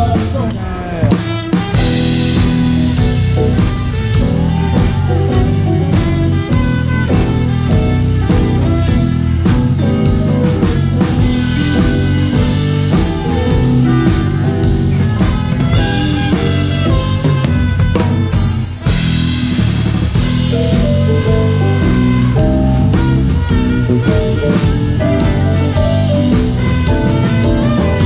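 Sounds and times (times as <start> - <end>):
drum and cymbal hits: 0.0 - 28.0
live rock band: 0.0 - 28.0.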